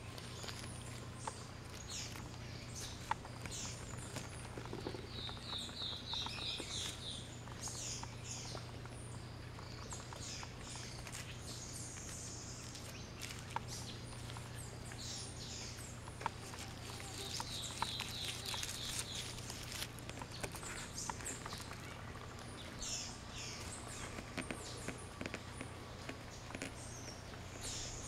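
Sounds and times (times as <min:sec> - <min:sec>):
birds chirping: 0:00.0 - 0:28.0
steady low hum: 0:00.0 - 0:28.0
sharp clicks and crackles: 0:15.7 - 0:22.9, 0:23.6 - 0:27.4.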